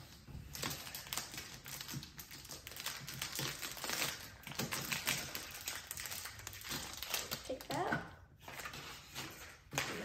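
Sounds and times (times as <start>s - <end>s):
foil wrapper tearing and crinkling: 0.5s - 7.8s.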